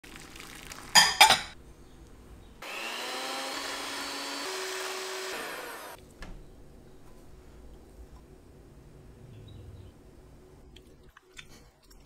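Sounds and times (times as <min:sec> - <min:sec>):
electric hand mixer whirring: 0:02.6 - 0:06.0.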